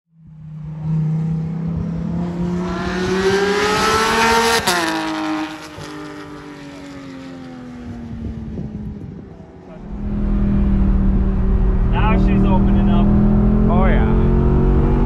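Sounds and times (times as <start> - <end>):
car engine accelerating hard: 0.6 - 15.0.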